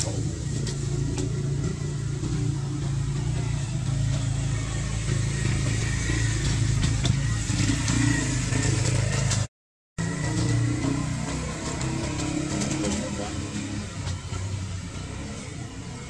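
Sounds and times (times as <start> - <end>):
low motor drone: 0.0 - 16.0.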